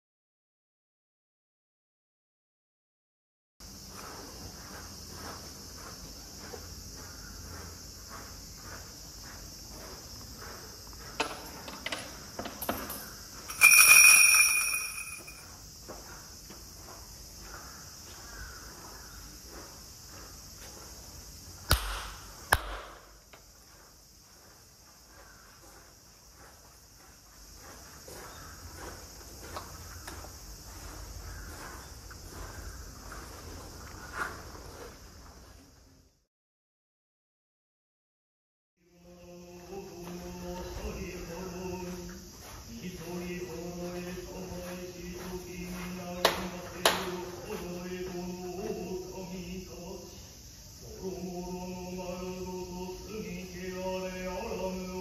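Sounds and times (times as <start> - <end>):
cicadas droning: 3.6 - 36.3, 38.8 - 55.0
shrine bell ringing: 13.5 - 15.5
hand claps: 21.7 - 23.1, 46.2 - 47.1.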